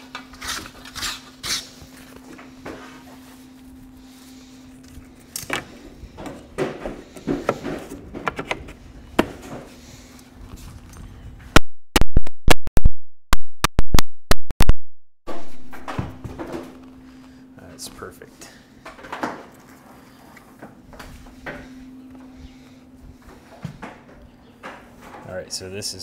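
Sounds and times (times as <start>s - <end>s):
faint steady hum: 15.3s - 26.0s.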